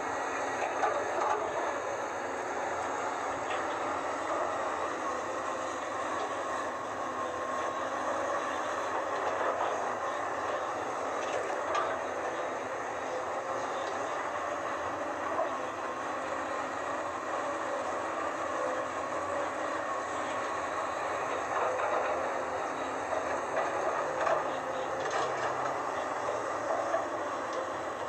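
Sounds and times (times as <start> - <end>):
excavator engine and hydraulics droning: 0.0 - 28.0.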